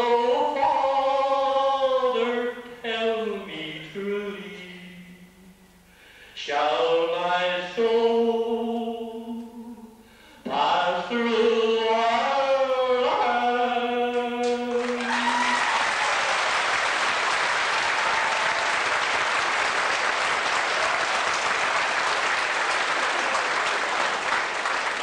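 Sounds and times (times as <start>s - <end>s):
audience applauding: 14.4s - 25.0s.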